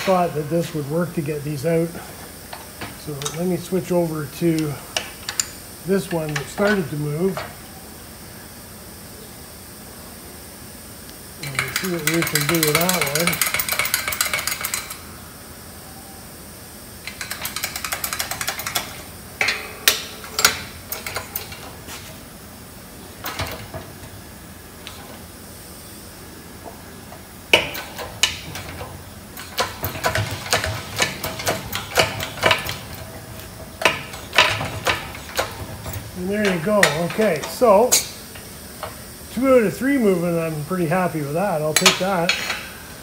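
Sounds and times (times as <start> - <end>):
metallic clicks and clanks: 11.4 - 15.0, 17.0 - 22.0, 23.2 - 24.2, 26.6 - 39.0, 41.7 - 42.8.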